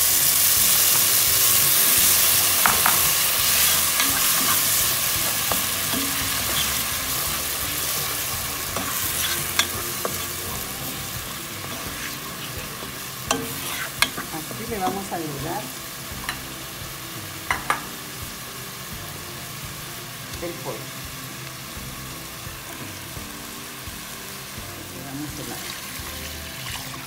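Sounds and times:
food sizzling in hot oil: 0.0s - 27.0s
spatula tapping pan: 2.6s - 4.5s.

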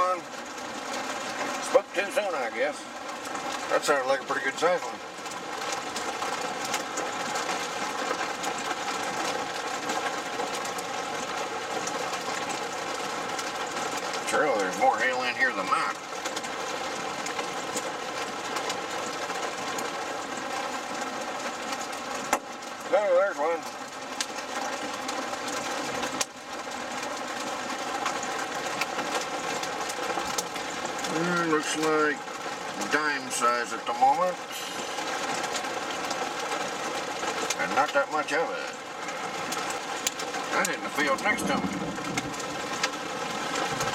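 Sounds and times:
hailstones ticking on car roof: 0.0s - 43.9s
rain hissing on car: 0.0s - 43.9s
car engine humming: 34.1s - 43.9s.

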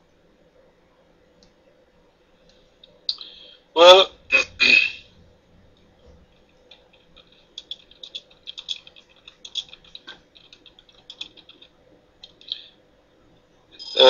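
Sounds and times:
faint steady hum: 0.0s - 14.0s
typing on computer keyboard: 6.4s - 12.6s.

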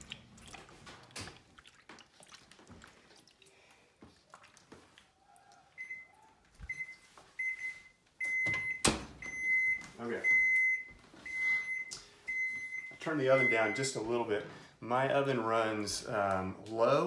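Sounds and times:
wet squelching and splashing: 0.0s - 7.0s
oven timer beeping: 6.7s - 13.9s.

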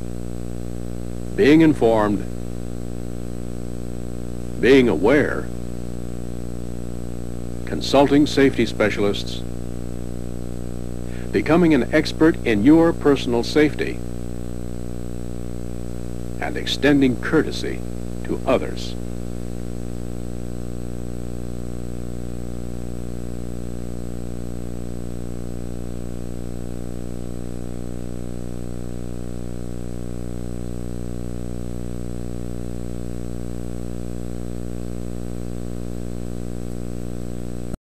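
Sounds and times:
buzzing electrical hum: 0.0s - 37.8s.

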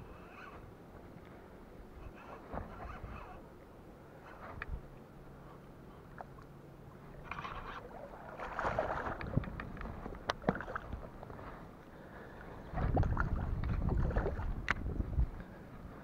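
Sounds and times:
water splashing and lapping: 4.1s - 16.0s.

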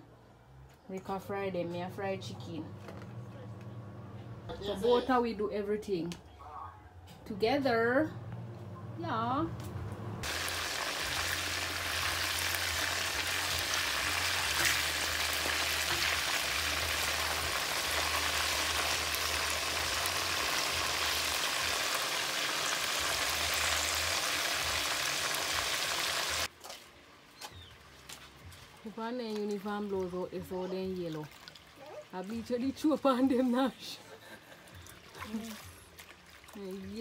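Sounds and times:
chicken frying in hot oil: 10.2s - 26.5s.

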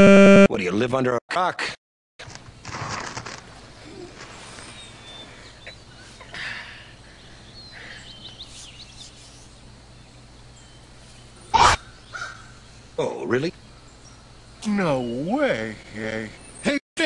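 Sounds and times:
steady low hum: 2.3s - 16.8s
bird chirps: 3.9s - 16.8s.

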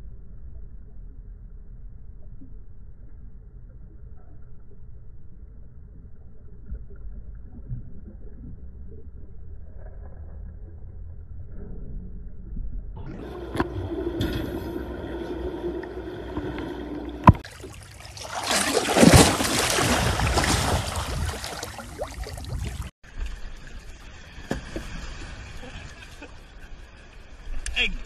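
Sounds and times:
low underwater rumble: 0.0s - 17.7s, 19.5s - 26.0s
churning water rushing: 13.1s - 22.9s
water lapping: 13.1s - 27.4s.

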